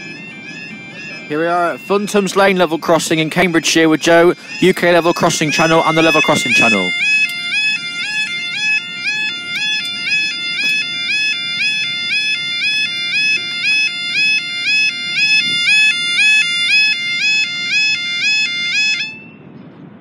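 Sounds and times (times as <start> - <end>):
level crossing warbling alarm: 0.0 - 19.4.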